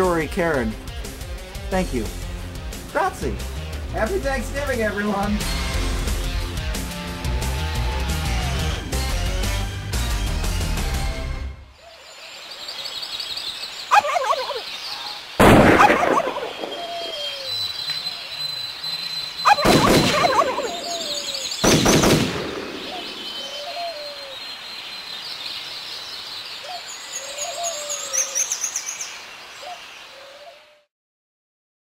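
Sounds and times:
birdsong: 0.0 - 10.8, 11.7 - 30.9
turkey gobbling: 13.9 - 14.7, 15.7 - 17.5, 19.4 - 21.4
loud sudden bangs: 15.4 - 16.8, 19.5 - 20.6.

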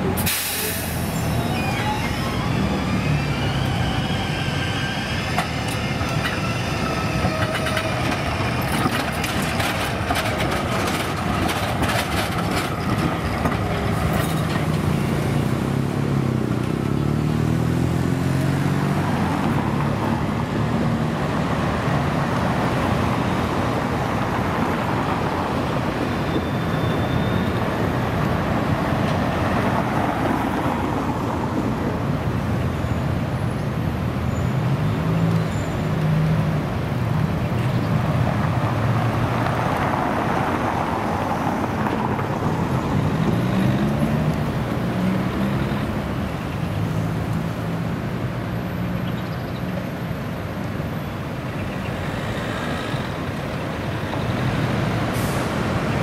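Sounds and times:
tram motor tones gliding: 0.0 - 24.2
street traffic noise: 0.0 - 56.0.

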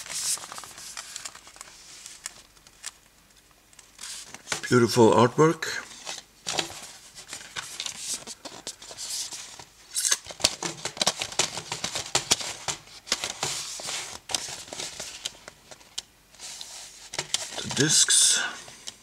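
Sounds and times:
cardboard rustling and scraping: 0.0 - 2.4, 5.8 - 9.7, 10.3 - 18.8.

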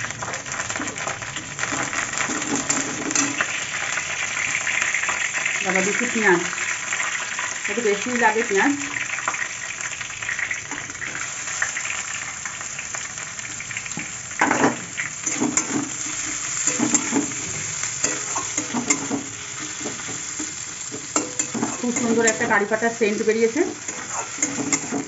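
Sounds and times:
onions sizzling in hot oil: 0.0 - 25.0
steel spatula scraping a pan: 14.4 - 22.8, 23.7 - 25.0.

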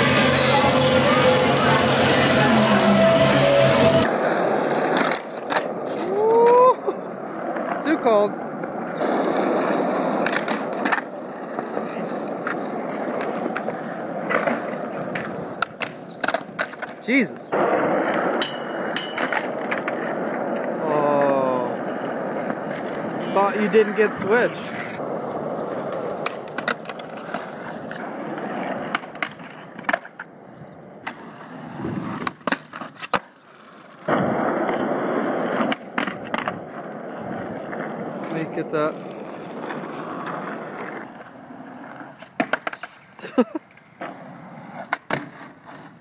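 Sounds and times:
skateboard clacking: 0.0 - 46.0
skateboard wheels rolling on concrete: 0.0 - 46.0
skateboard sharp knocks: 13.2 - 17.0, 17.6 - 21.4, 42.2 - 43.0, 44.8 - 45.5.

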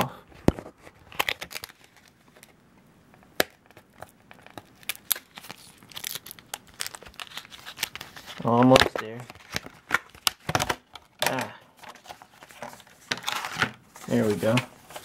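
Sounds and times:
plastic packaging crinkling: 0.6 - 2.6, 3.5 - 15.0
tape peeling: 4.3 - 10.6.

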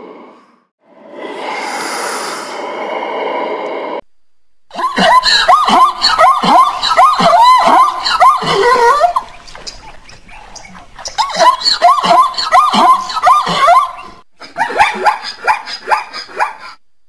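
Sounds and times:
breathy sounds: 0.0 - 4.0.

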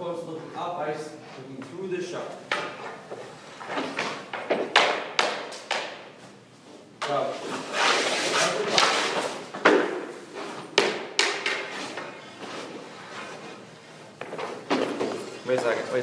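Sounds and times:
hockey stick and puck knocks: 3.6 - 6.1, 8.7 - 10.1, 10.7 - 12.1.

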